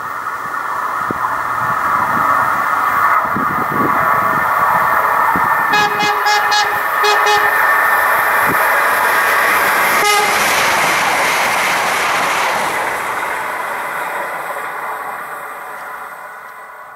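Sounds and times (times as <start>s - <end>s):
train passing with wheel noise: 0.0s - 16.9s
train horn: 5.7s - 8.2s, 9.8s - 10.8s.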